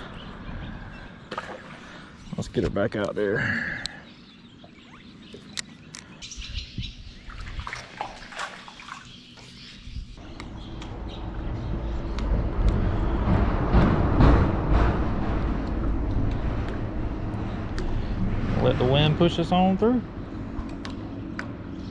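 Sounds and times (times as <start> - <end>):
birds chirping: 0.0 - 13.6, 17.1 - 21.9
low rumbling noise: 9.8 - 21.9.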